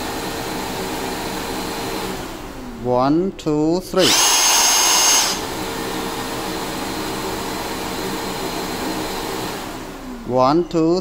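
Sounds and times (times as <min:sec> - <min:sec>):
vacuum humming: 0:00.0 - 0:03.0, 0:04.0 - 0:10.9
power tool motor whining: 0:04.0 - 0:10.2.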